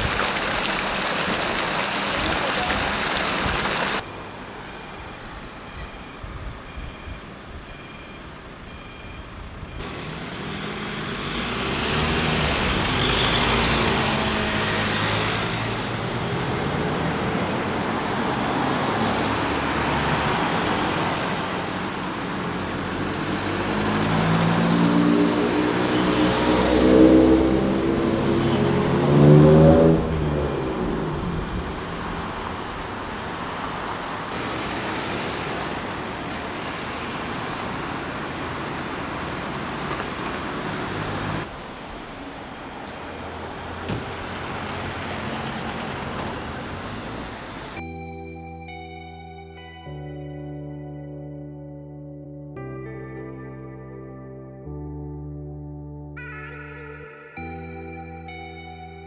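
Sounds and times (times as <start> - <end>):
cars driving past: 0.0 - 47.9
vehicle passing close: 9.8 - 47.8.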